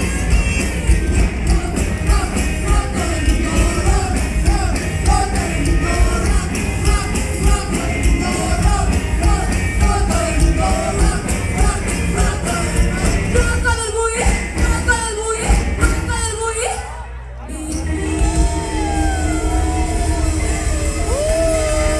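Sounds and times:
live rock and roll band: 0.0s - 21.9s
woman singing: 17.4s - 19.3s.

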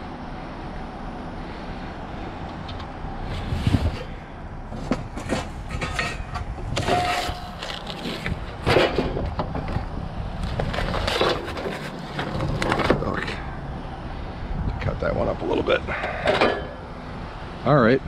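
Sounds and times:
debris scraping and clattering: 4.8s - 13.4s.

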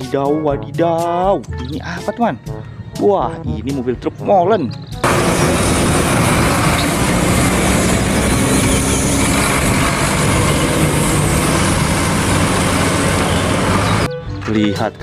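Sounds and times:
road noise: 2.4s - 3.4s, 4.0s - 15.0s
diesel truck engine driving past: 5.0s - 14.1s.

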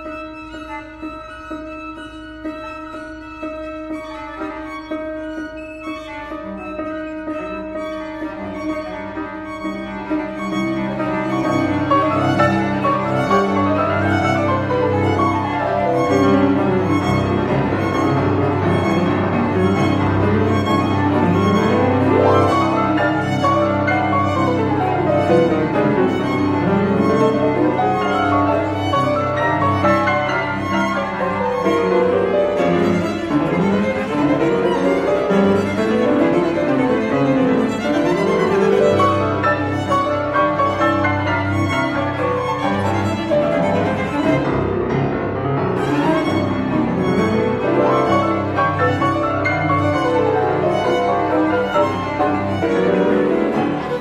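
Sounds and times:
violin cello and piano playing: 0.0s - 54.0s.

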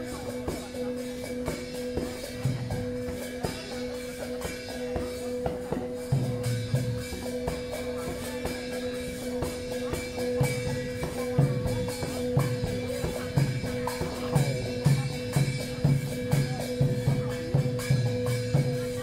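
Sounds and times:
music with drum beat: 0.0s - 19.0s.

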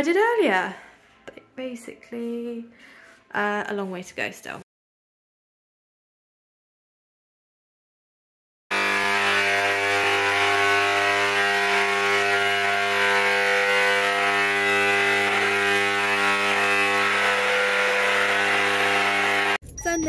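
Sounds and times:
electric paint sprayer buzzing: 8.7s - 19.6s.

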